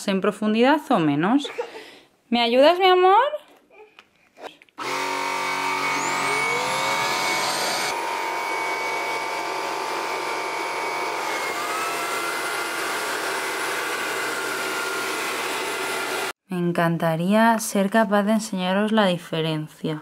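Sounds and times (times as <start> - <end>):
stick vacuum motor whirring: 4.8 - 16.4.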